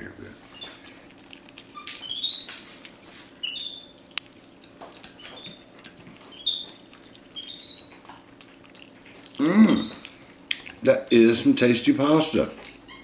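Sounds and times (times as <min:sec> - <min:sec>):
monkey squeaky chirps: 0:00.6 - 0:00.8, 0:01.7 - 0:02.8, 0:03.4 - 0:04.0, 0:05.1 - 0:05.7, 0:06.3 - 0:08.0, 0:09.8 - 0:10.6, 0:11.2 - 0:13.0.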